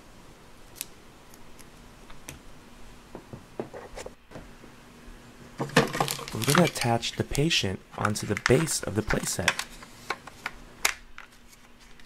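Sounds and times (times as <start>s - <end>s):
plastic toy parts clicking: 6.0s - 7.0s.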